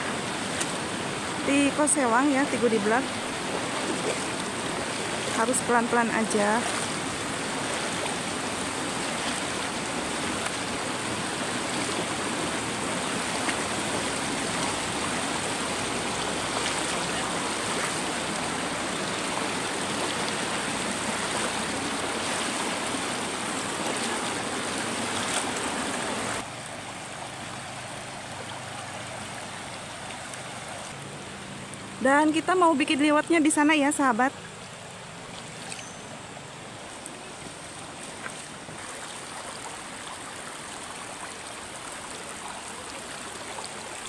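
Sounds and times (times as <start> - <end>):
river rushing over rocks: 0.0 - 31.8.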